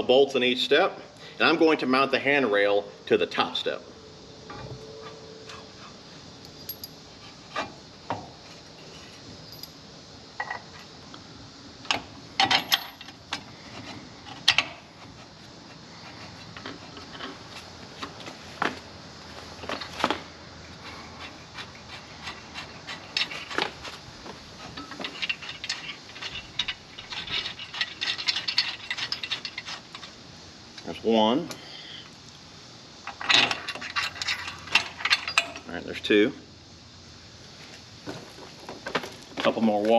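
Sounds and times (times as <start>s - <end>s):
metal parts clinking and scraping: 6.4s - 7.0s, 12.4s - 13.2s, 21.9s - 24.0s, 24.6s - 30.2s, 33.0s - 35.7s
small metal rattling: 24.6s - 30.2s.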